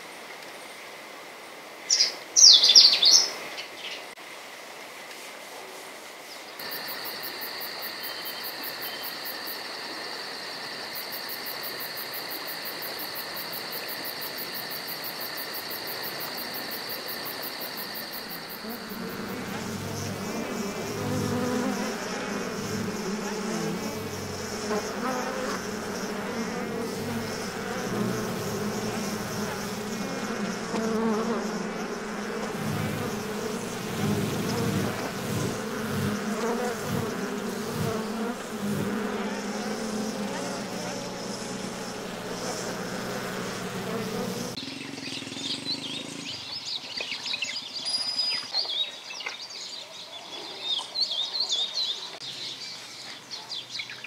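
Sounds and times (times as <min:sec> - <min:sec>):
flying insects buzzing: 0:06.5 - 0:46.4
high-pitched insect trill: 0:06.6 - 0:44.7.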